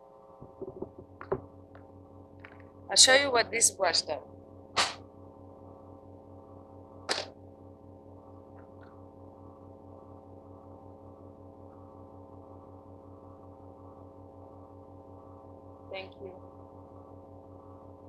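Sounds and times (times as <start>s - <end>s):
electrical mains hum: 0.0s - 18.0s
short sharp noise: 4.8s - 5.0s.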